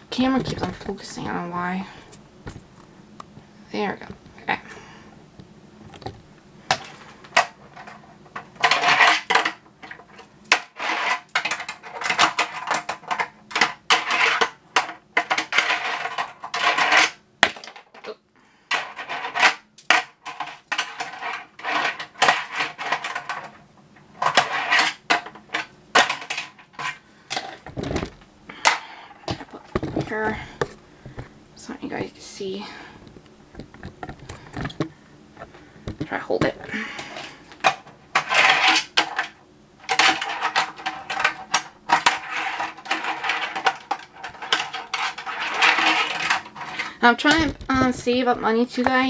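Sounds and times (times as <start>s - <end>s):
small wheels rolling on plastic: 5.9s - 31.2s, 36.0s - 48.1s.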